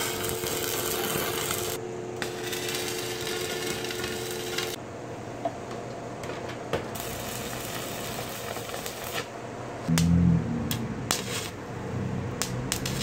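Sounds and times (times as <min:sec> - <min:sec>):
welding arc crackling: 0:00.0 - 0:04.8, 0:07.0 - 0:09.3, 0:09.9 - 0:11.6, 0:12.3 - 0:13.0.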